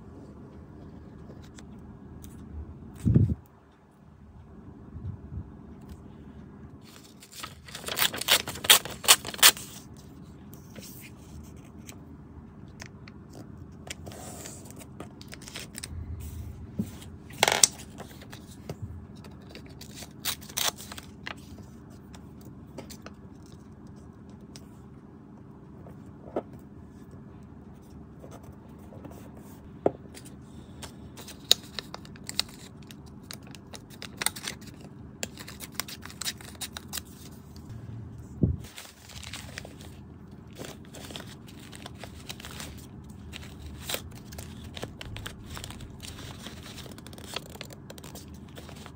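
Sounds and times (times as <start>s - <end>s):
paper crinkling and rustling: 6.8s - 12.0s, 12.7s - 24.7s, 30.1s - 37.7s, 38.6s - 48.9s.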